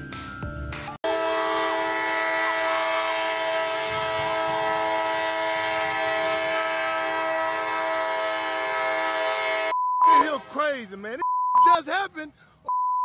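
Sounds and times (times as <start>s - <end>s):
train air horn blast: 1.0s - 10.7s.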